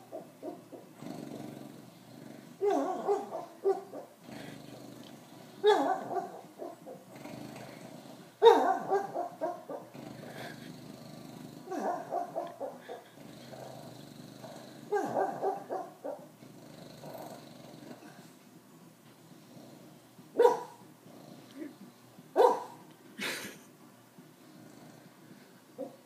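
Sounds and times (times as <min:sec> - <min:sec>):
dog whining and grumbling: 0:00.0 - 0:18.4.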